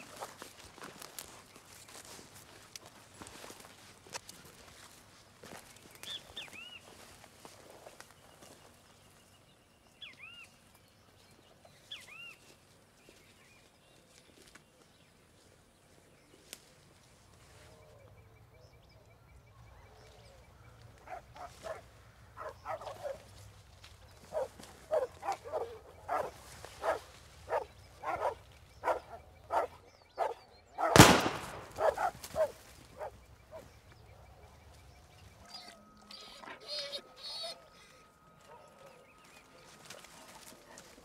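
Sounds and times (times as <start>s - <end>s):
dog barking: 21.0s - 23.3s, 24.3s - 31.0s, 31.7s - 33.7s, 38.4s - 41.0s.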